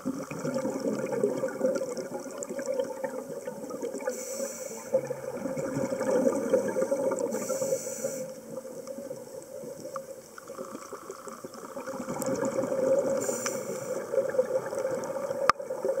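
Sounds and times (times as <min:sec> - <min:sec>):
bubbling exhales underwater: 0:00.0 - 0:04.2, 0:04.8 - 0:07.7, 0:10.5 - 0:16.0
regulator hissing inhales: 0:04.1 - 0:05.0, 0:06.7 - 0:08.6, 0:13.1 - 0:14.2.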